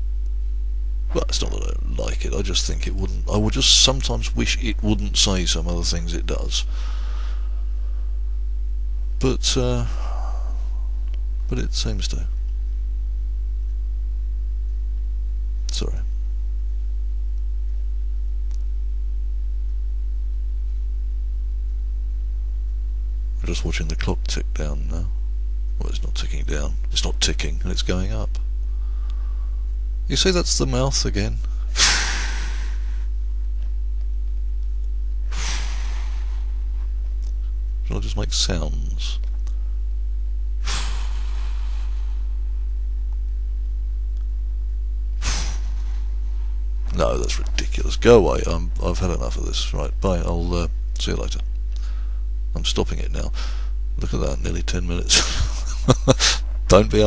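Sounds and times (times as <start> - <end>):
low electrical hum: 0.0 - 57.0
breath on microphone: 6.7 - 8.3, 28.7 - 29.7, 31.5 - 33.1, 35.3 - 36.7, 40.6 - 42.4, 45.2 - 46.6, 51.8 - 52.3, 53.3 - 53.8.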